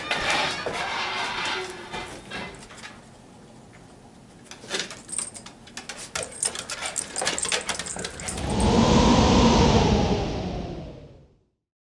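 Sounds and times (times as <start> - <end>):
whooshing sound effect falling tone: 8.2 - 11.4.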